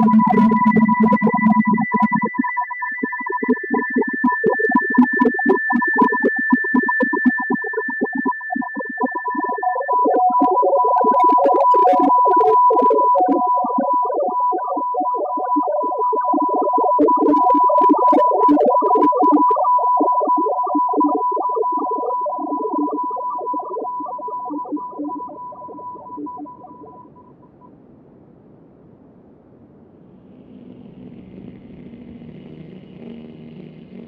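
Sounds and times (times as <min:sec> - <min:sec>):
electronic music: 0:00.0 - 0:02.1, 0:30.2 - 0:34.0
crackling noise bursts: 0:00.0 - 0:08.6, 0:25.2 - 0:34.0.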